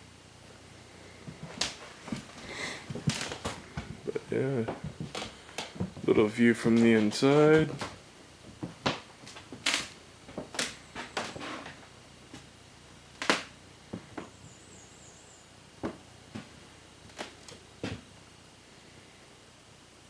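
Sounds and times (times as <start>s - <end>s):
faint high wavering chirp: 14.3s - 15.6s.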